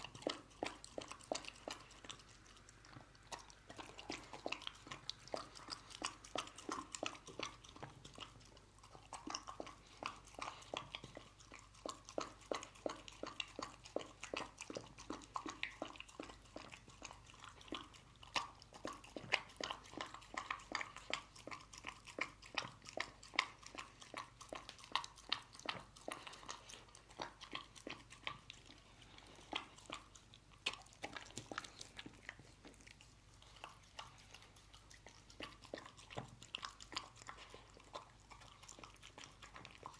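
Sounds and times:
dog chewing wet food: 0:00.0 - 0:39.9.

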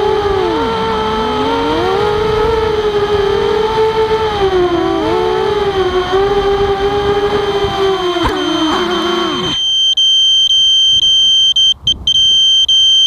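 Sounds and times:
quadcopter propellers whining: 0:00.0 - 0:09.6.

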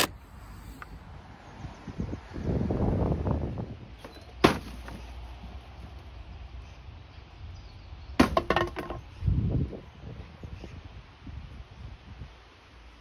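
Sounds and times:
wooden batten clattering on decking: 0:08.2 - 0:09.0.

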